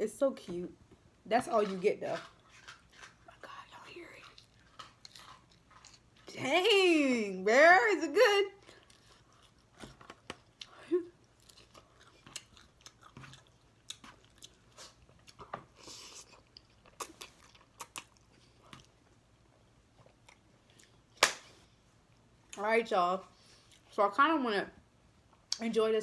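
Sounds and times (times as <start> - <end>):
close chewing with mouth smacks: 1.6 - 6.3, 8.6 - 21.2, 23.4 - 24.0.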